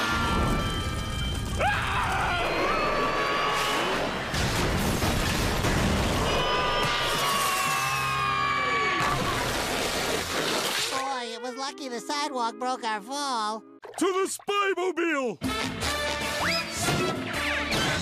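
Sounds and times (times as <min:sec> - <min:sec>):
crashing debris: 0:04.0 - 0:07.8.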